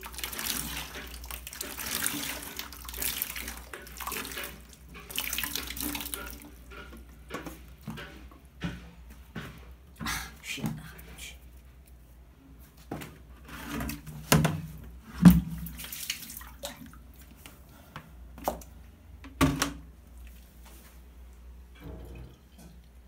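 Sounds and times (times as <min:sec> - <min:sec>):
plastic bucket knocking on tiles: 0:13.8 - 0:15.7, 0:19.2 - 0:19.8.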